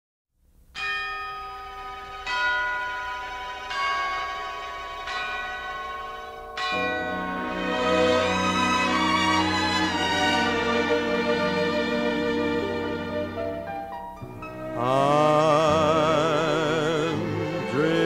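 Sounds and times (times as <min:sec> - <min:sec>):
bells struck: 0:00.8 - 0:11.2
low sustained instrumental notes: 0:03.1 - 0:18.0.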